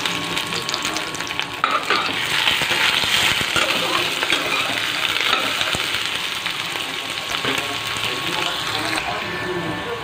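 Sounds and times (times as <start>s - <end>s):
onions sizzling in hot oil: 0.0s - 9.5s.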